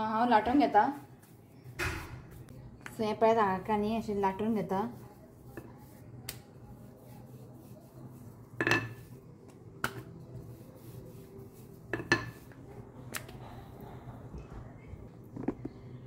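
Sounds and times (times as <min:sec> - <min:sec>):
rolling pin rolling dough: 0:00.1 - 0:03.0, 0:03.7 - 0:13.0.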